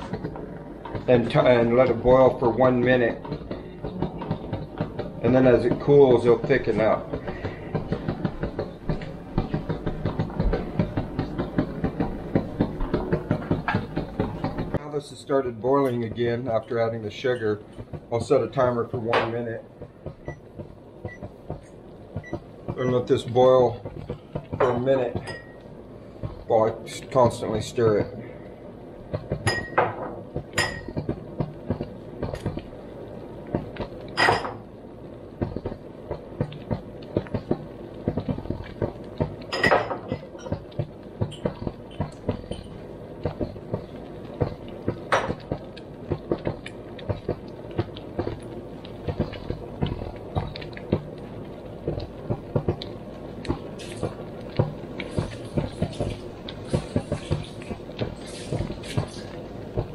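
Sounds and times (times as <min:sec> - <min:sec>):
jam bubbling and popping: 0:00.0 - 0:59.9
wooden spoon stirring: 0:40.2 - 0:59.9.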